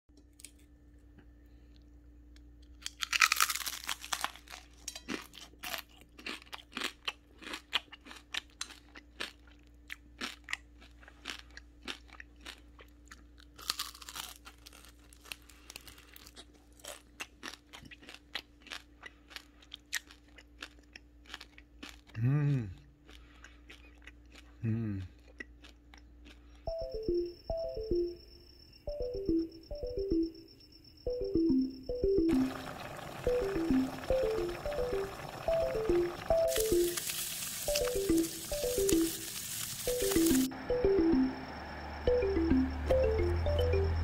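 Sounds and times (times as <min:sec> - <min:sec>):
crunching crispy fried fish: 0:02.6 - 0:22.3, 0:22.9 - 0:26.6, 0:32.5 - 0:40.5.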